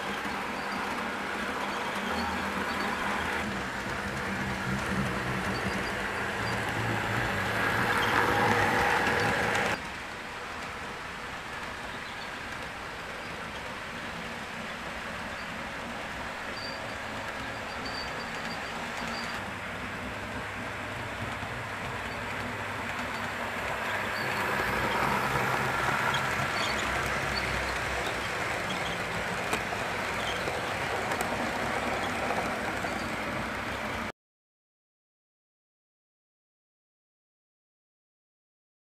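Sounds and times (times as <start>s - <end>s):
model trains rumbling on rails: 0.0s - 34.1s.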